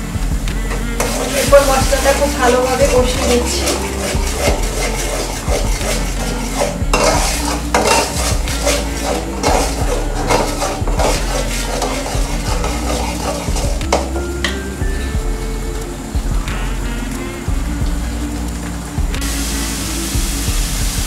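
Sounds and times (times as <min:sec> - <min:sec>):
paste sizzling: 0:00.0 - 0:21.0
metal spatula scraping pan: 0:00.7 - 0:14.6
spatula knocking against pan: 0:04.1 - 0:14.6.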